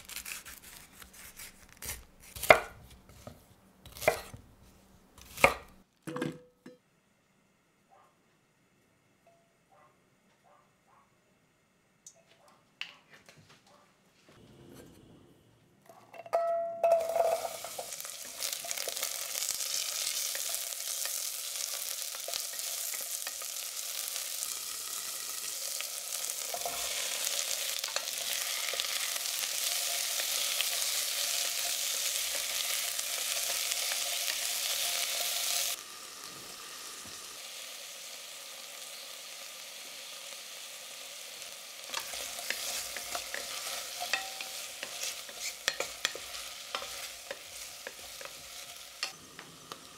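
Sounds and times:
vegetables sizzling in oil: 0:16.8 - 0:49.9
spoon knocking against pan: 0:42.0 - 0:48.4.

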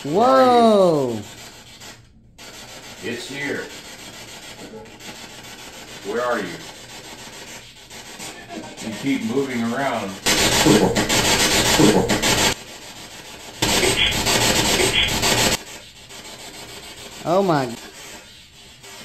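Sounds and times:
warbling voice-like sound: 0:10.3 - 0:12.5
radio static bursts: 0:10.3 - 0:12.6, 0:13.6 - 0:15.6.

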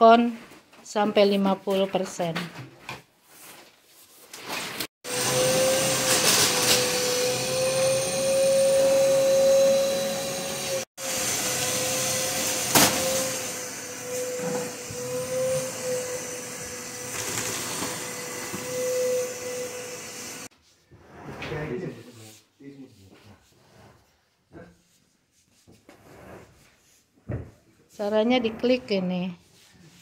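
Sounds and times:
electric motor whine: 0:05.1 - 0:20.5.

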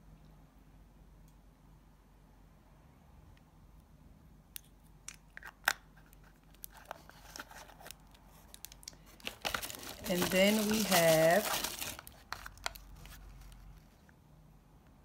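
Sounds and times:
hands rummaging in packing: 0:09.1 - 0:13.5.

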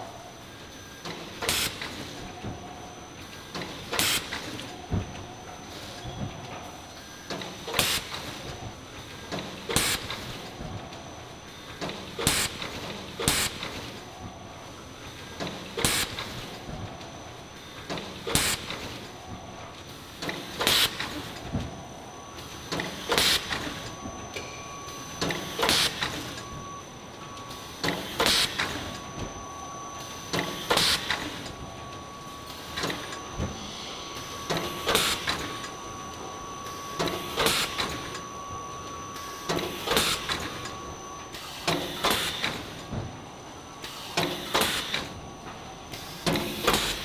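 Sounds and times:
mechanical hum: 0:00.0 - 0:47.0
bag-making machine clattering: 0:11.8 - 0:14.0, 0:44.1 - 0:47.0.

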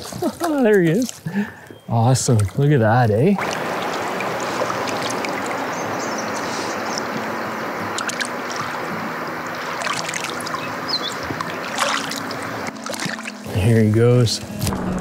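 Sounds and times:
small water splashes and drips: 0:00.0 - 0:02.7, 0:03.3 - 0:13.5
river current rushing: 0:03.4 - 0:13.7.

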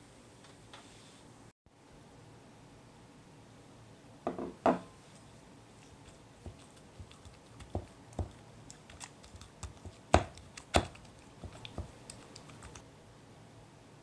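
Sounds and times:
wooden spatula knocking glass bowl: 0:10.1 - 0:12.0.

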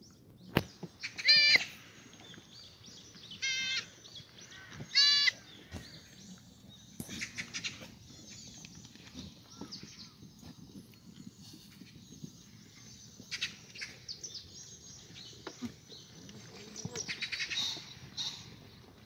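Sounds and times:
goats bleating: 0:03.4 - 0:03.9, 0:04.9 - 0:05.4.

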